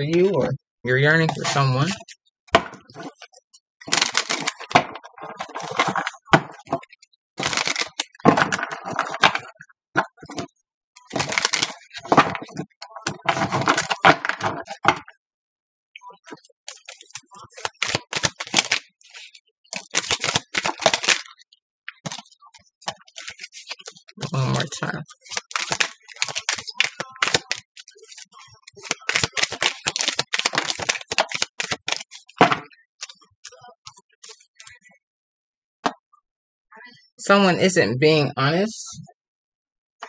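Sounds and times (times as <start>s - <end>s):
cards being shuffled: 3.9s - 4.8s, 7.4s - 9.4s, 11.0s - 14.6s, 16.7s - 21.4s, 22.9s - 32.5s.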